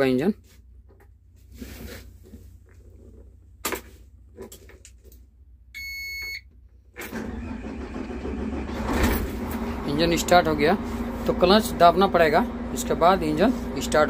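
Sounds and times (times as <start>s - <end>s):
short electronic beep: 5.8s - 6.4s
diesel engine starting and running: 6.5s - 14.0s.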